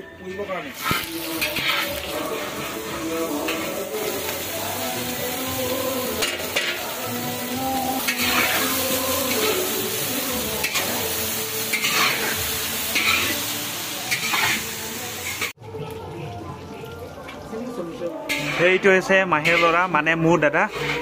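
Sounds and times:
vegetables sizzling in a wok: 0.7s - 21.0s
metal spatula scraping pan: 8.0s - 9.7s, 11.7s - 13.4s, 14.1s - 15.6s, 18.3s - 21.0s.

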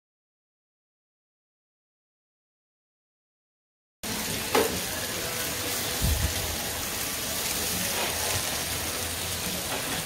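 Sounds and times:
seafood sizzling on a grill plate: 4.0s - 10.0s.

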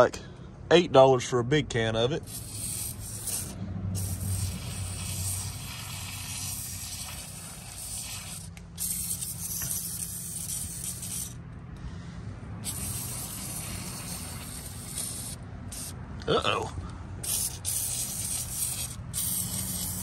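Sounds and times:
aerosol can spraying: 2.2s - 11.4s, 12.6s - 16.0s, 17.2s - 20.0s.

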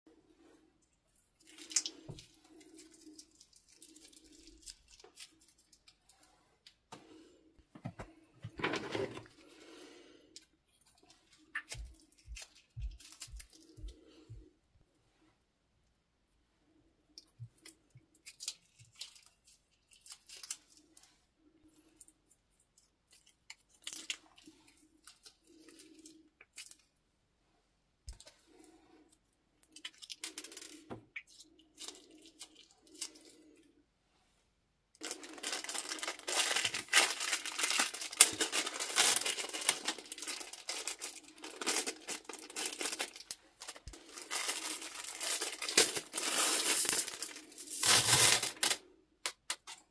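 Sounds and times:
plastic bag rustling: 35.0s - 48.8s
plastic bag crinkling: 35.0s - 48.9s.

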